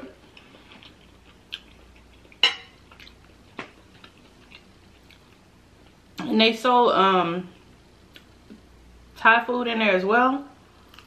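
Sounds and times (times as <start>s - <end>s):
fork clinking against plate: 2.4s - 2.8s.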